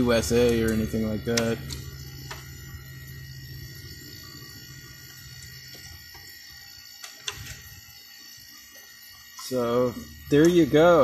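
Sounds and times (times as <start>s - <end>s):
air conditioner fan hum: 0.0s - 11.0s.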